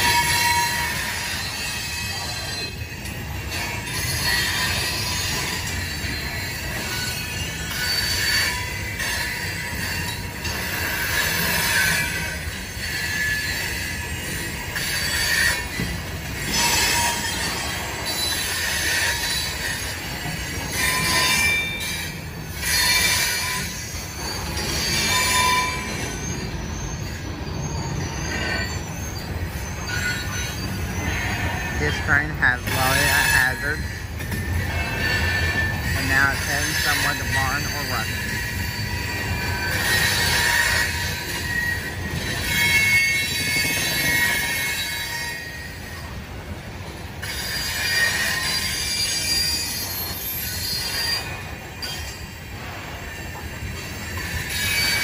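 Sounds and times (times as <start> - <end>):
high-pitched wheel squeal: 0.0 - 46.2, 46.9 - 55.0
wheels rumbling on rail: 0.0 - 55.0.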